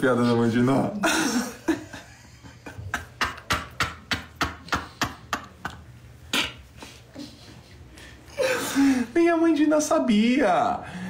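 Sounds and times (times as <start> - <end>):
man laughing: 0.9 - 3.8.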